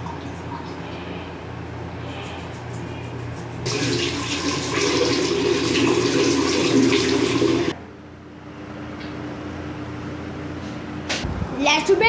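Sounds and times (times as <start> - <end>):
tap water running into basin: 3.7 - 7.8.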